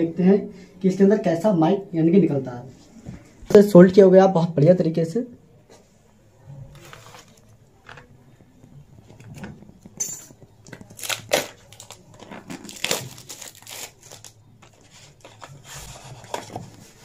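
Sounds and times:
plastic film crinkling and tearing: 6.7s - 8.1s, 10.6s - 17.0s.

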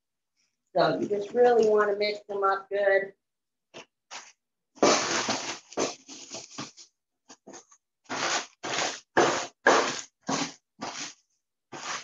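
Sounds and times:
rolling pin crushing cookies in bag: 4.8s - 6.2s, 8.1s - 12.0s.

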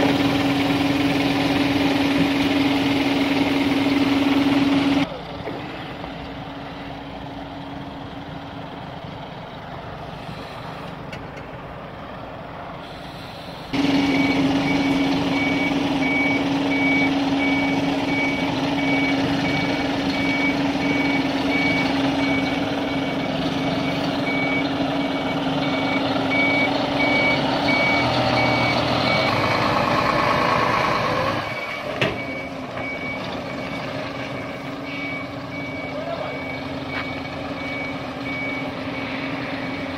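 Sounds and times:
truck engine running: 0.0s - 39.9s
reversing alarm beeping: 13.7s - 30.5s, 31.4s - 39.9s.

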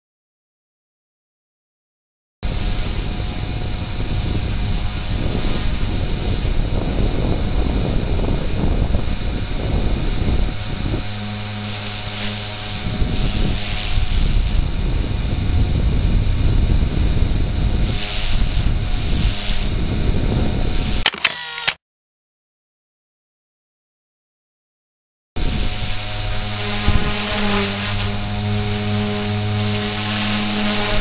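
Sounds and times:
rotor wash buffeting microphone: 2.4s - 21.0s, 25.4s - 31.0s
rc helicopter motor whine: 2.4s - 21.8s, 25.4s - 31.0s.

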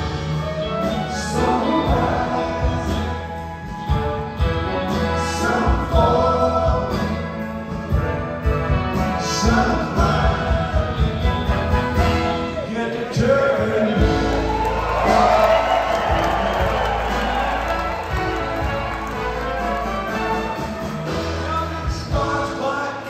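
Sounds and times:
rock band and orchestra playing: 0.0s - 23.0s
person singing: 0.4s - 4.0s, 4.8s - 7.8s.

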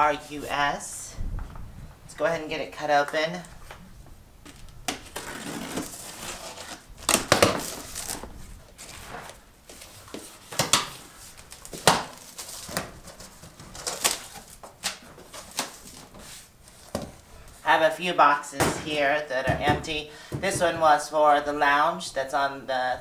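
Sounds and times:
cardboard crinkles and knocks: 4.5s - 17.2s.

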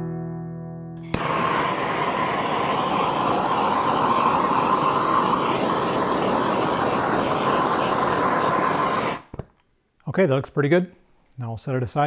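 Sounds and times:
gas torch flame hissing: 1.0s - 9.4s.

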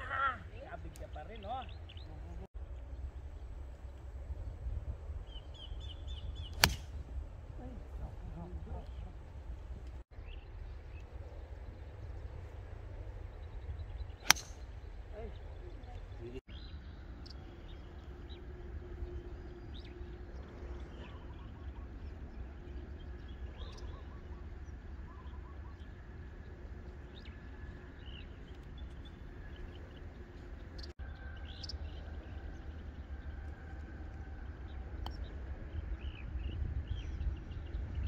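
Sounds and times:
wind rumbling on microphone: 1.7s - 17.1s, 32.0s - 38.0s.

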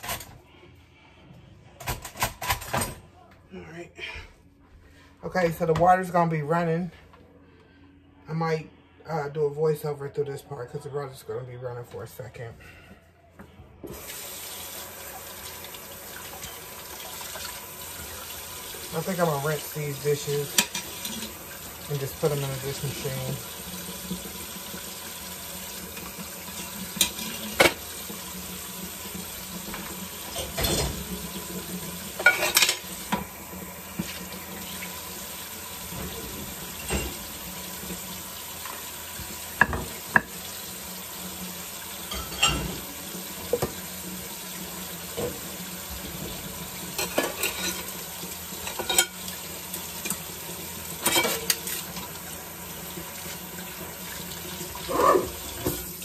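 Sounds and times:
dishes and cutlery clinking: 20.5s - 21.3s, 30.3s - 31.1s, 32.2s - 33.3s, 36.7s - 37.4s, 42.1s - 42.9s, 47.0s - 48.0s, 48.6s - 49.2s, 51.0s - 51.8s
tap running into sink: 38.7s - 40.4s.

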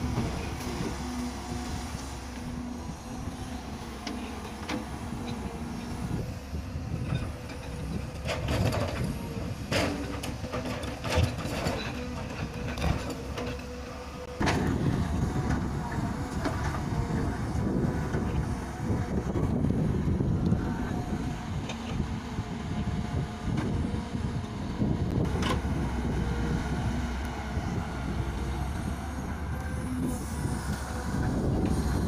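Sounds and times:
excavator diesel engine under load: 0.0s - 32.0s.

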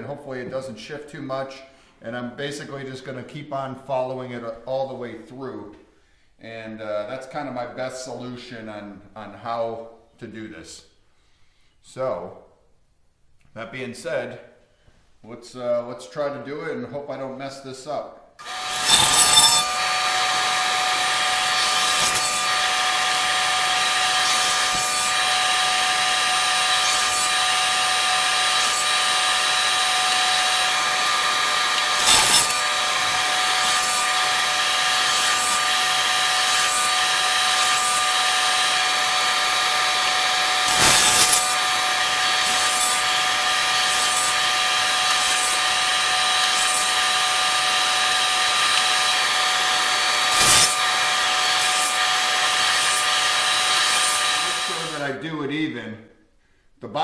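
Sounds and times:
table saw cutting wood: 18.4s - 55.2s.

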